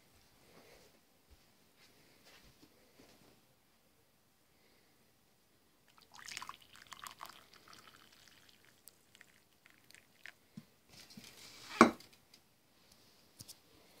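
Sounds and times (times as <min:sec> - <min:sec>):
tea pouring into mug: 0:05.9 - 0:10.4.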